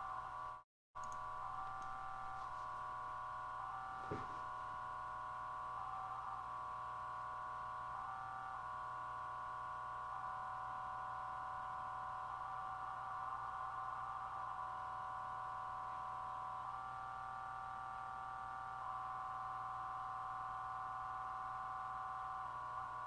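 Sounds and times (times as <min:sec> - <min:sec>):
faint low hum: 0:00.0 - 0:06.4.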